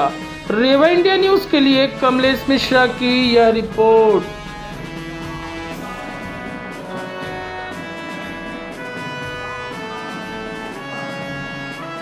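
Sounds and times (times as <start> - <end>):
instrumental music with held notes: 0.0 - 12.0.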